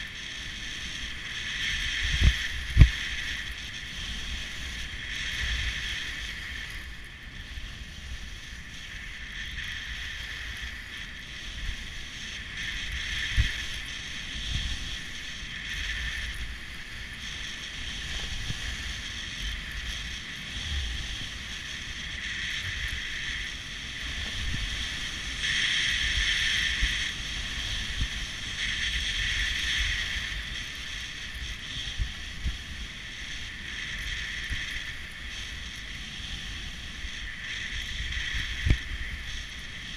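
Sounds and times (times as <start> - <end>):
wind rumble on microphone: 0.0 - 39.9.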